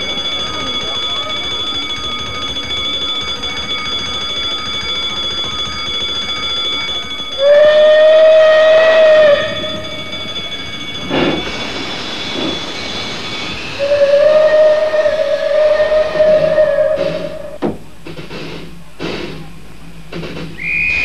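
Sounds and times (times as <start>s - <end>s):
electric bell ringing: 0.0s - 15.9s
steam locomotive whistle: 7.3s - 10.1s, 12.3s - 17.6s, 20.6s - 21.0s.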